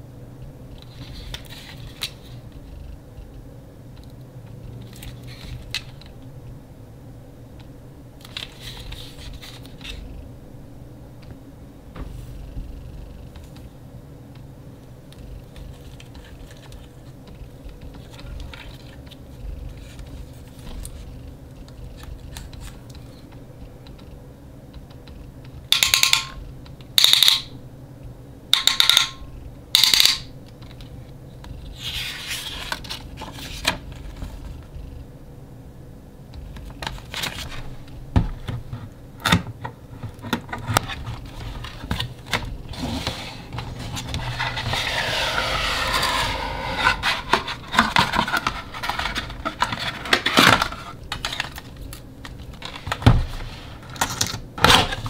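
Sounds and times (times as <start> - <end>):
loud short scrapes: 42.7 - 48.9
plastic parts rustling and clicking: 45.9 - 55.0.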